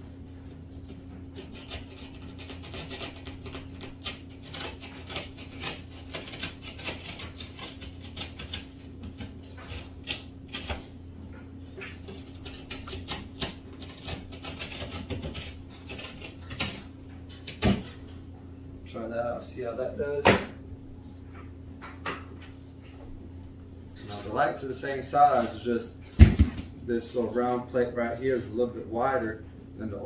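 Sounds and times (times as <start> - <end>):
steady low hum: 0.0 - 30.0
hand tool rasping drywall: 0.8 - 11.0, 11.8 - 18.0.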